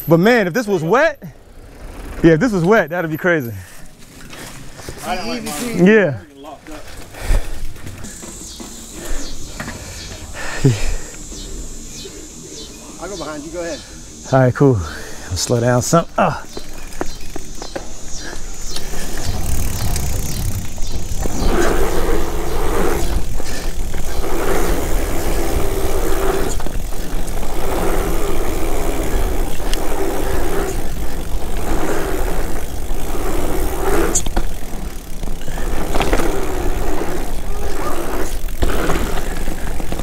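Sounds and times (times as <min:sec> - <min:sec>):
bike tyres rolling over dirt: 0:00.0 - 0:40.0
wind buffeting microphone: 0:18.7 - 0:24.5.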